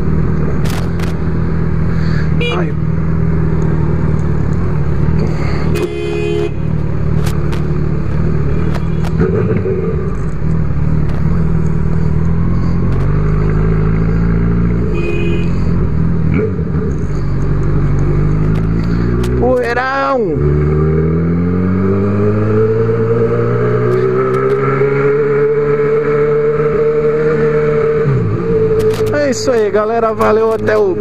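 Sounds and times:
motorcycle engine accelerating: 6.5s - 31.0s.

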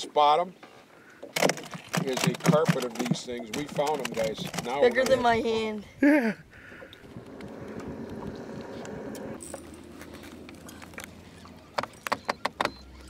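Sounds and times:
fishing tackle clicks: 1.3s - 5.2s
boat motor running: 6.7s - 13.0s.

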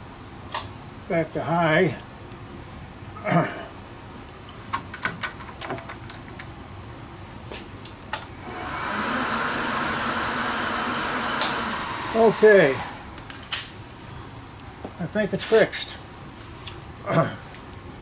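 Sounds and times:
sharp clicks of mill controls: 4.4s - 6.6s, 7.8s - 13.6s
mill spindle motor humming: 8.2s - 13.4s.

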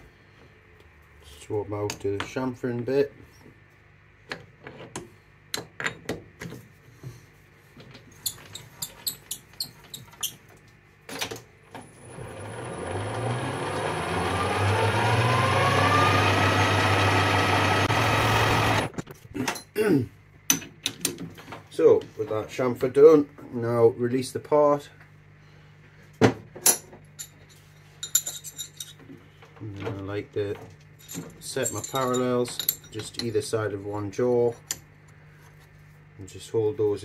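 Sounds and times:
lathe motor whine: 11.8s - 18.9s.

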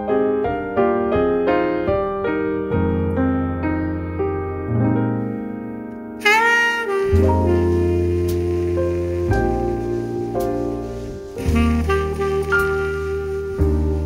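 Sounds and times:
keyboard chords: 0.0s - 14.0s
sliding lead melody: 0.0s - 14.0s
bass line: 2.6s - 5.6s, 6.3s - 14.0s.

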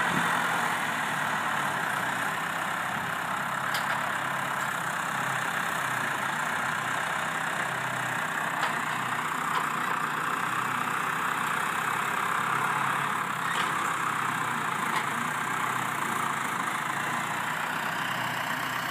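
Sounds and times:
tractor engine running: 0.0s - 18.9s.

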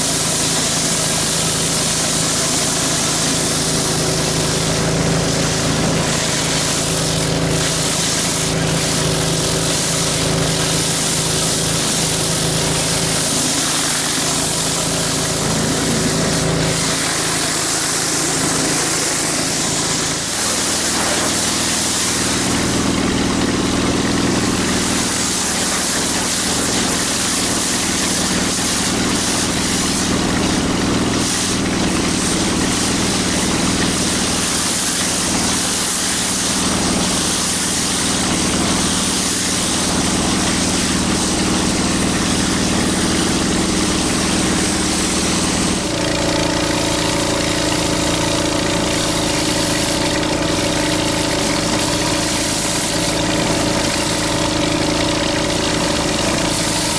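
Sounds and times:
pressure washer engine running: 0.0s - 56.9s
water spraying on concrete: 0.0s - 56.9s.

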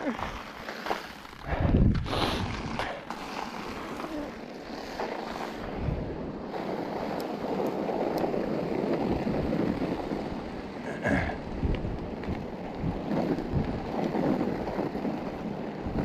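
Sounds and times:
wind on microphone: 1.4s - 2.9s, 5.5s - 16.0s.

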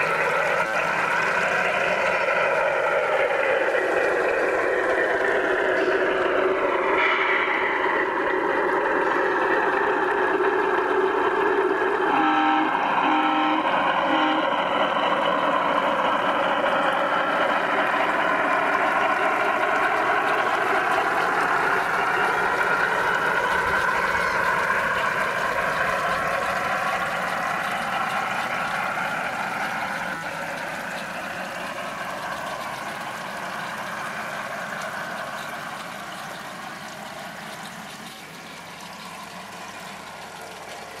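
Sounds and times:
model diesel engine running: 0.0s - 41.0s
model train two-note horn: 12.1s - 14.7s.

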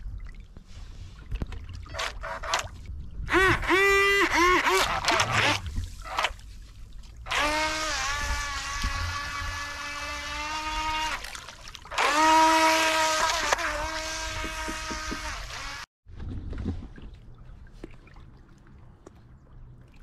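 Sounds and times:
water splashing and hissing: 0.0s - 1.8s
electric motor whining: 7.3s - 11.2s, 11.9s - 15.9s.

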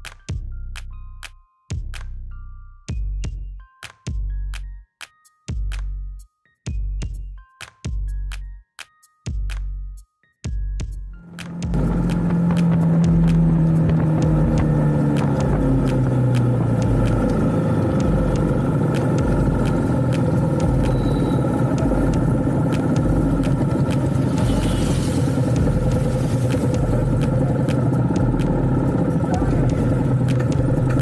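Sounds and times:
motorcycle engine cruising: 11.2s - 31.0s.

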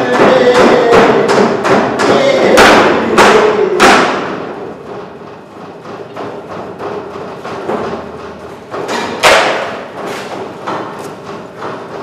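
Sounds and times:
fists pounding on a tabletop: 0.0s - 12.0s.

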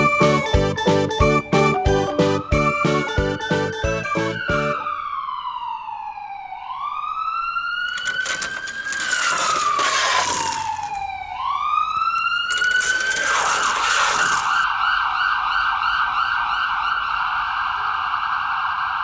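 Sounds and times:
siren wailing: 2.4s - 17.5s
plastic toy wheels rattling: 7.9s - 14.7s.

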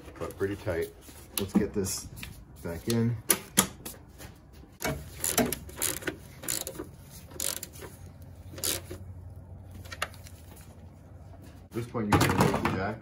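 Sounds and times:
socket ratchet clicking: 5.0s - 7.9s, 8.5s - 8.9s.

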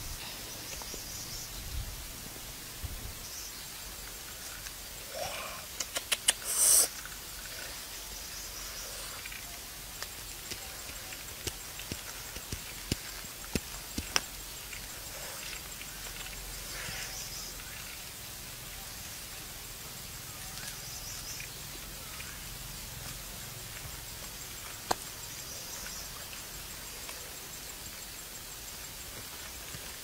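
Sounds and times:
sharp clicks: 5.8s - 7.2s.

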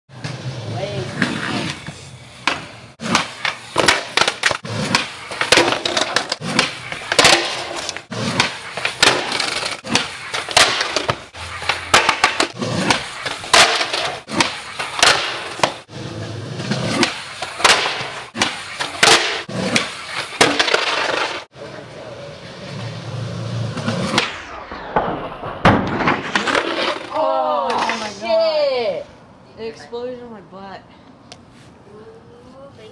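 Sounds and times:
skateboard wheels rolling: 0.1s - 29.0s
skateboard knocking on concrete: 1.2s - 15.8s.

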